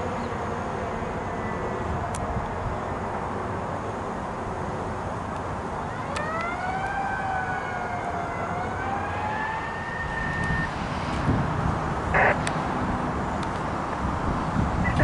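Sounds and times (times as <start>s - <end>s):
fire engine siren wailing: 5.8s - 12.5s.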